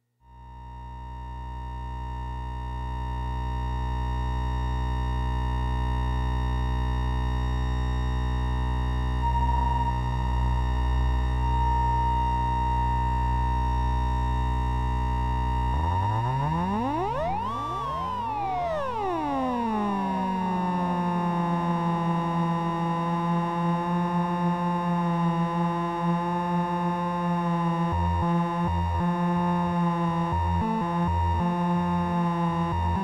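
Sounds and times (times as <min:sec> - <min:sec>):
synth oscillator vowel tone: 0:09.0 - 0:23.4.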